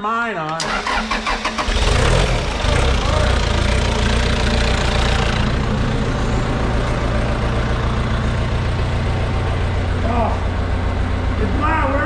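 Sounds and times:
diesel engine running: 0:00.6 - 0:12.0.

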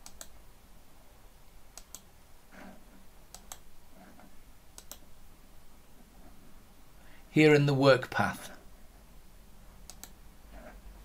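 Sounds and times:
computer mouse clicks: 0:00.0 - 0:00.4, 0:01.5 - 0:02.1, 0:03.3 - 0:05.1, 0:09.8 - 0:10.7.

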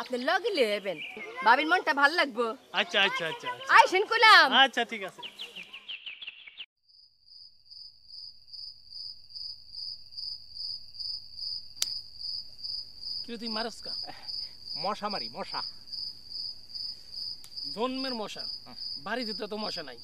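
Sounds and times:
crickets chirping: 0:05.8 - 0:20.0
sharp click: 0:11.8 - 0:12.0.

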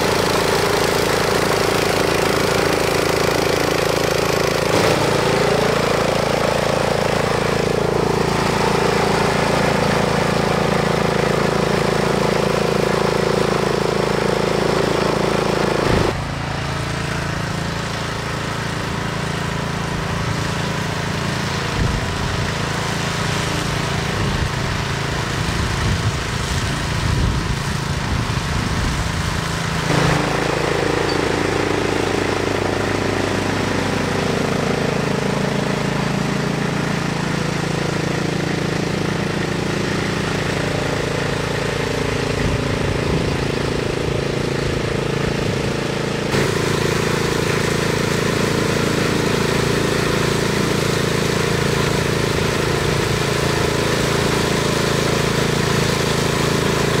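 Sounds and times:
grass cutter engine running: 0:00.0 - 0:57.0.

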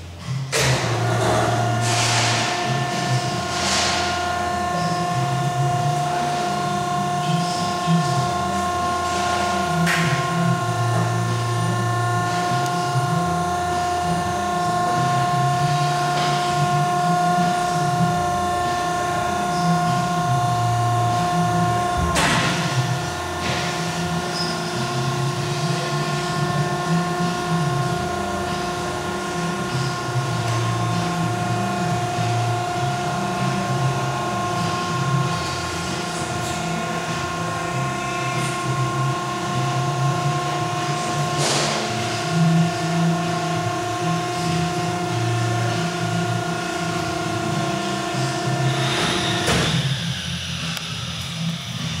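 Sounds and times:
hydraulic motor and pump hum: 0:00.0 - 0:52.0.

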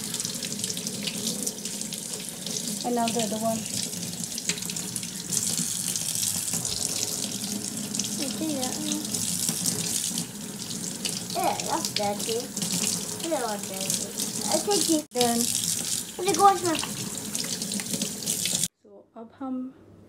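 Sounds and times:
water splashing over potato: 0:00.0 - 0:18.7.

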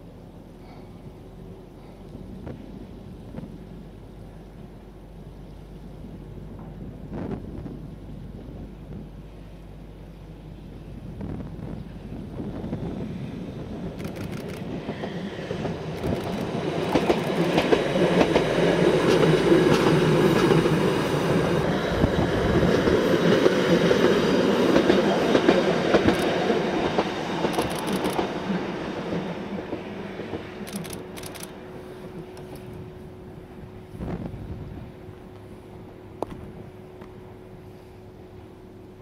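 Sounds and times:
electric train passing: 0:00.0 - 0:39.0
wheels clicking over rail joints: 0:14.0 - 0:20.8, 0:24.8 - 0:28.3.

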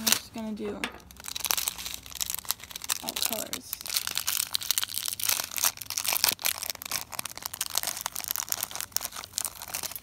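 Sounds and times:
plastic packet crinkling: 0:00.0 - 0:10.0.

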